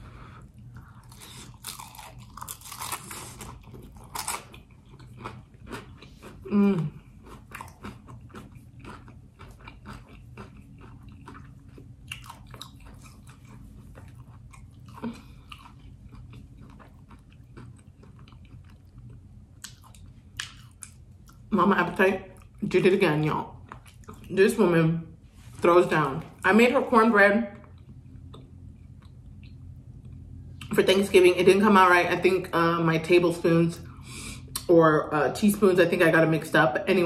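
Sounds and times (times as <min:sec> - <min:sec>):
crunching bites and chewing: 0:00.4 - 0:21.5.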